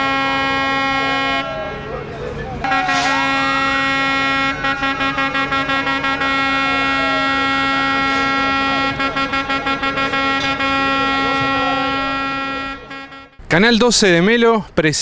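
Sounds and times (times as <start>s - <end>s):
long horn blast: 0.0s - 13.4s
rapid horn toots: 0.0s - 13.4s.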